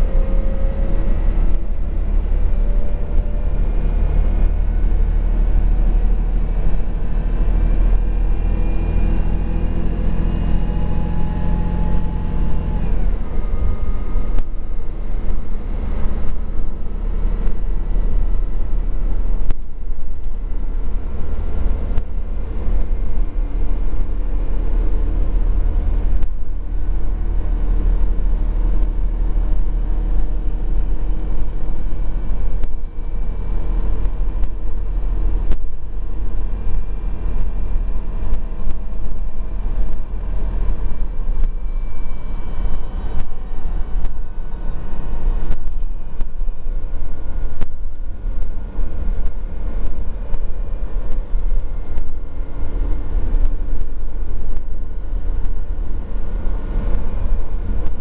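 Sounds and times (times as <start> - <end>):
bus engine drone: 0.0 - 58.0
low road rumble: 0.0 - 58.0.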